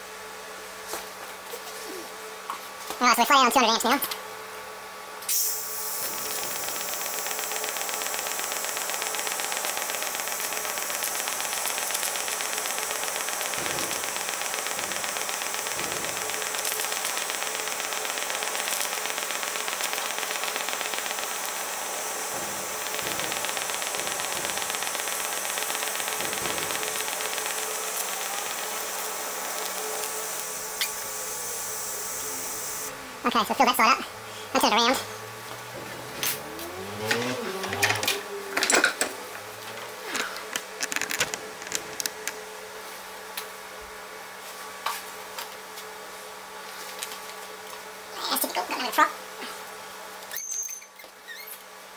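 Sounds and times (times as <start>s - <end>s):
welding arc hissing: 5.3s - 33.8s.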